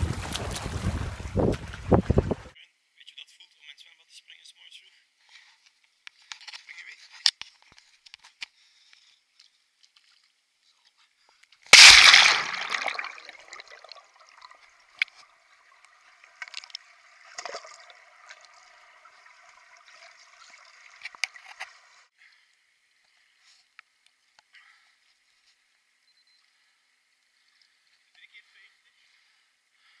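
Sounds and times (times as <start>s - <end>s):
water splashes: 0.0s - 2.5s, 11.7s - 22.1s
pool water sloshing and gurgling: 11.8s - 22.0s.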